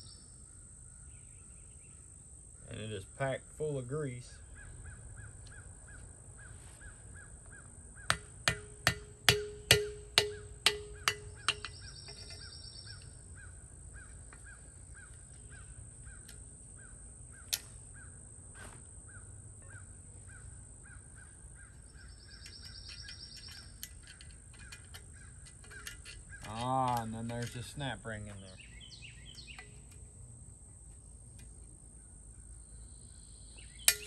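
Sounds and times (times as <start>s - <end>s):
hammer striking metal punch: 8.1s - 12.4s
sharp metal tap: 8.1s - 13.1s.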